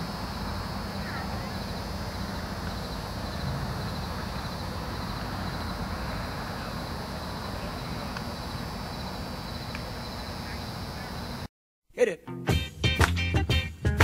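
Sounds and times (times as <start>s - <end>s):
low rumble and hiss: 0.0s - 11.5s.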